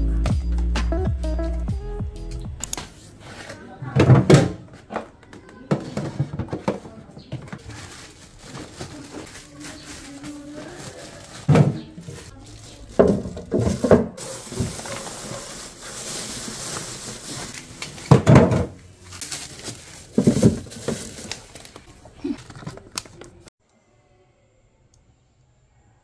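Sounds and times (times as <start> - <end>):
knocks and clatters on shelves: 3.8 - 15.6, 16.7 - 21.8
plastic bags rustling: 6.0 - 23.5.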